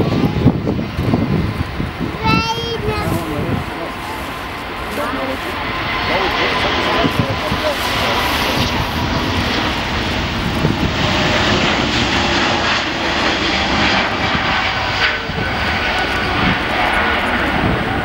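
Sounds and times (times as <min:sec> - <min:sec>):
jet engines at take-off: 0:00.0 - 0:18.0.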